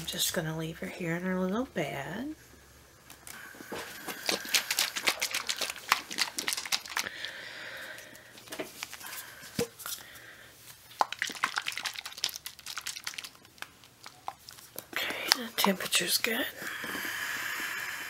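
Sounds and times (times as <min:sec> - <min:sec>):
crinkly fabric rustling: 0:03.8 - 0:07.1.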